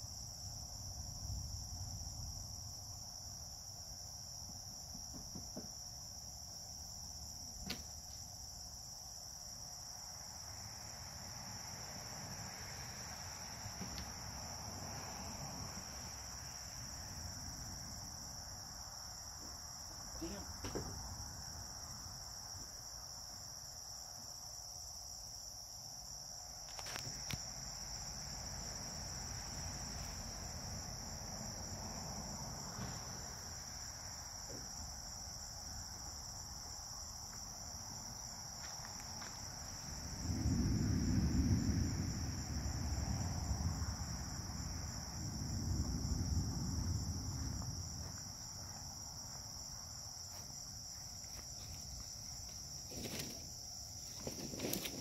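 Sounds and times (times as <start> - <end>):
night insects chirping: 0.0 - 55.0
rolling thunder rumble: 39.6 - 48.6.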